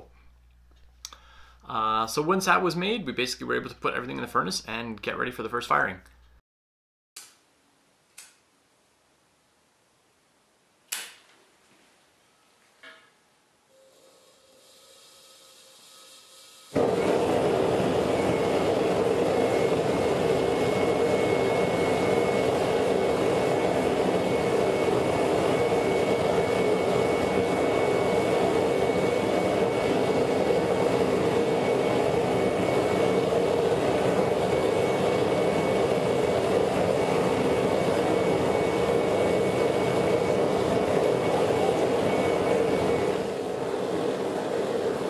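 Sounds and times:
propane burner flame roaring: 0:13.8 - 0:45.0.

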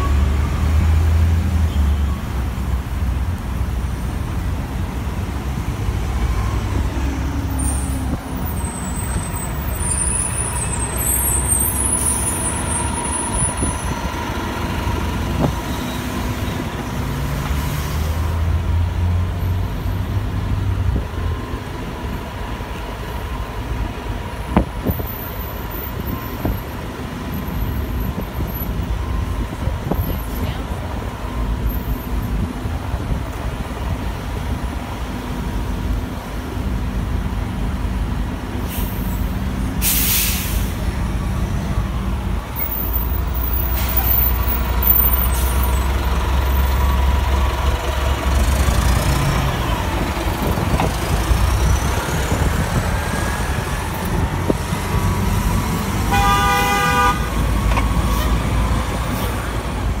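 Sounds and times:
bus diesel engine rumbling: 0:00.0 - 1:00.0
air hiss: 0:39.8 - 0:40.8
vehicle horn tooting: 0:56.1 - 0:57.3.

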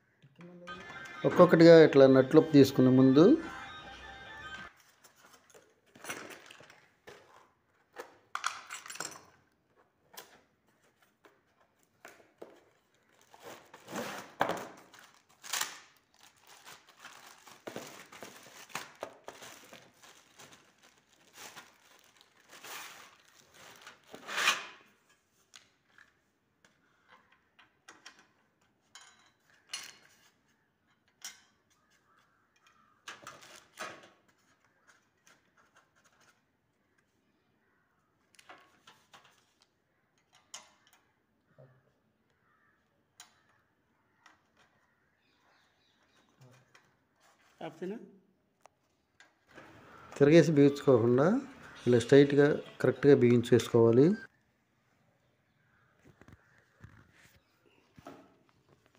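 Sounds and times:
metal parts clinking: 0:08.4 - 0:09.4
plastic wrapping crinkling and tearing: 0:12.9 - 0:24.3.

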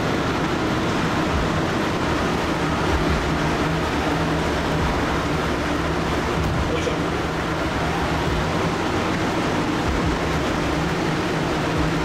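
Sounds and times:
ship engines and ventilation humming: 0:00.0 - 0:12.0.

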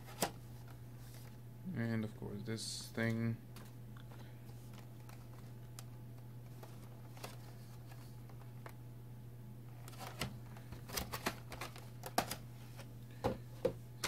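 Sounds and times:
plastic clicks and crinkles: 0:09.8 - 0:12.4.

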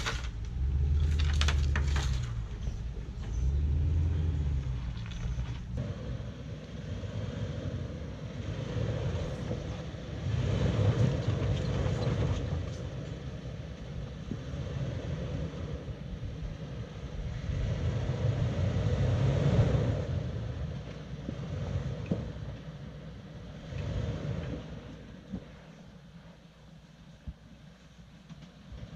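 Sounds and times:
engine rumbling at low speed: 0:00.0 - 0:28.9.

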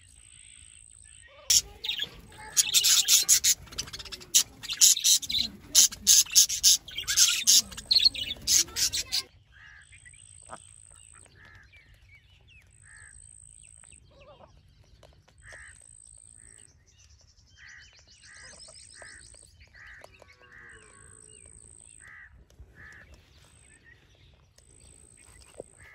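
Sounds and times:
faint short bird calls: 0:01.4 - 0:09.9
bird trill: 0:01.5 - 0:09.3
budgerigars chirping and chattering: 0:01.5 - 0:09.3.

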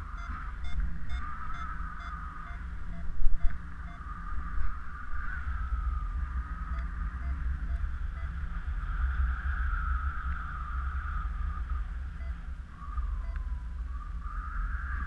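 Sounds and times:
variometer tone wavering in pitch: 0:00.0 - 0:04.3, 0:06.6 - 0:08.4
wind rush on microphone: 0:00.0 - 0:15.0.

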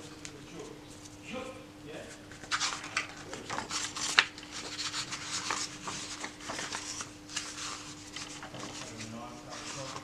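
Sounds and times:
book pages turning: 0:02.3 - 0:10.0.

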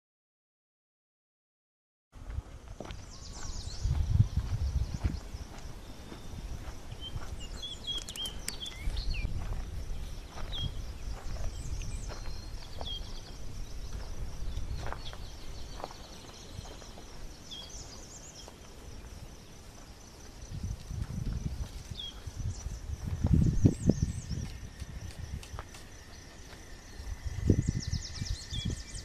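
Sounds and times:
footsteps on gravel: 0:02.2 - 0:18.8, 0:19.7 - 0:23.6, 0:24.3 - 0:27.2
wind rumble on microphone: 0:02.2 - 0:29.0
small birds chirping: 0:02.8 - 0:29.0
high insect buzz: 0:06.3 - 0:29.0.

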